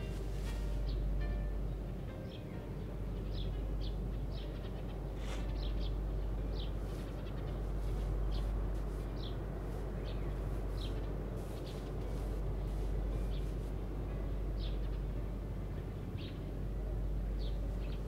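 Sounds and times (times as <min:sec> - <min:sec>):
steady low hum: 0:00.0 - 0:18.0
small birds chirping: 0:02.3 - 0:13.8, 0:14.5 - 0:15.1, 0:16.2 - 0:16.5.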